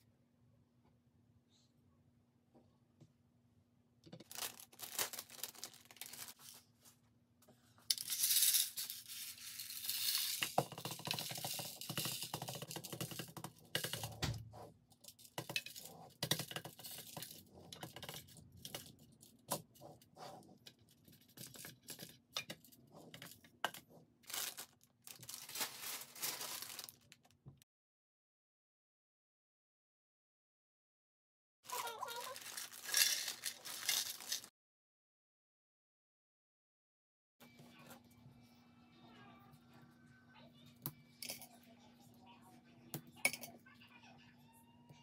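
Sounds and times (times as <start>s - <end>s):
plastic bags crinkling: 4.2s - 6.7s, 24.2s - 27.3s, 31.7s - 34.5s
plastic pieces clicking and clattering: 7.9s - 14.2s, 31.7s - 34.5s.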